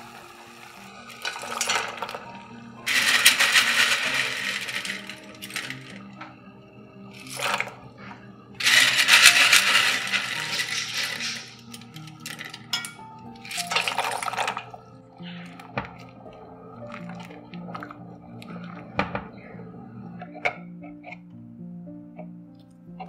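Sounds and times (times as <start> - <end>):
dry pasta clattering into pot: 1.1 - 6.2, 7.2 - 7.8, 8.6 - 14.8.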